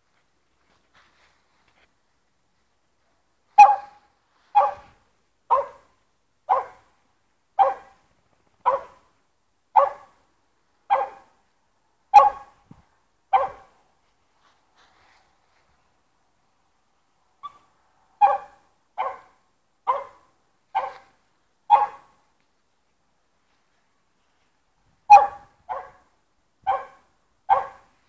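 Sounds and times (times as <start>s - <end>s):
small dog barking: 3.6s - 5.9s, 6.5s - 6.9s, 7.6s - 8.0s, 8.6s - 9.1s, 9.8s - 10.2s, 10.9s - 11.3s, 12.1s - 12.6s, 13.3s - 13.7s, 17.4s - 21.1s, 21.7s - 22.1s, 25.1s - 28.0s.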